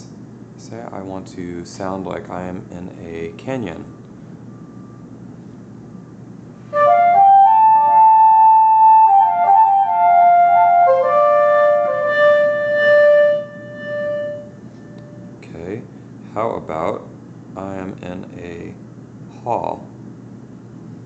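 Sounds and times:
synthesized flute melody with echo: 6.7s - 15.3s.

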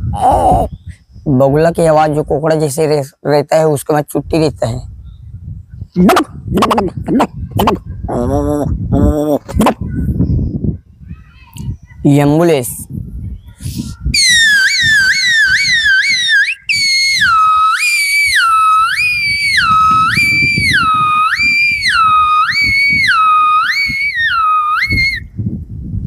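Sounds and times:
man whistling siren imitation: 14.1s - 25.3s.

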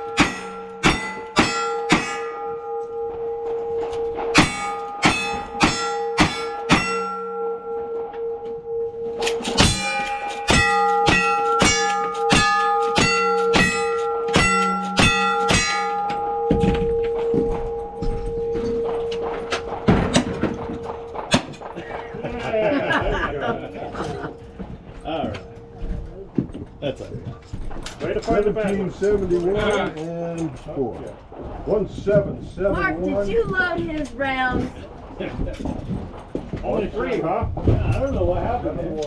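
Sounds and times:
steel plates ringing: 0.0s - 26.4s.

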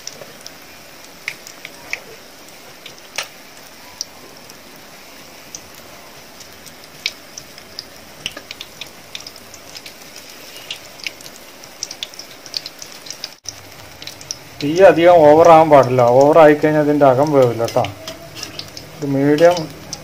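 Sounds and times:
fritters deep-frying in oil: 0.0s - 20.0s.

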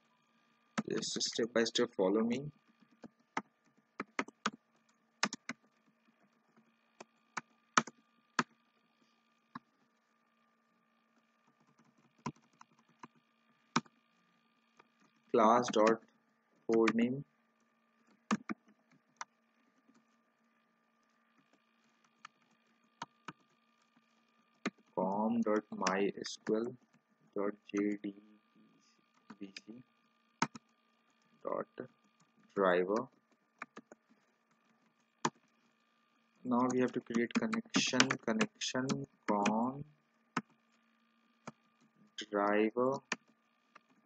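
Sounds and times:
faint steady hum: 0.0s - 44.0s
keyboard typing: 2.8s - 8.6s, 11.4s - 14.0s, 14.8s - 16.0s, 16.7s - 17.1s, 18.0s - 20.2s, 21.4s - 27.0s, 30.4s - 31.3s, 32.1s - 35.6s, 36.5s - 40.6s
faint keyboard keystrokes: 36.6s - 39.6s.

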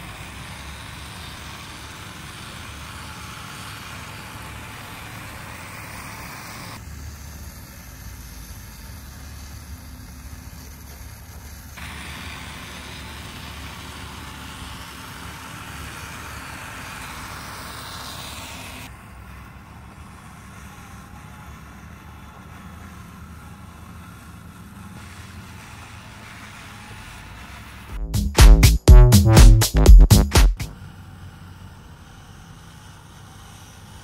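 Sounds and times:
low motor hum: 27.8s - 31.8s
electronic music with heavy beat: 28.0s - 30.7s.

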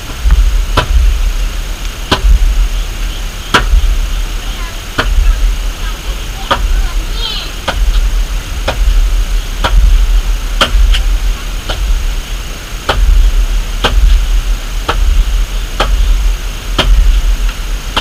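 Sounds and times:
steady low rumble: 0.0s - 18.0s
hand tool knocking on wood: 6.4s - 6.9s, 7.6s - 9.0s, 16.8s - 17.1s.

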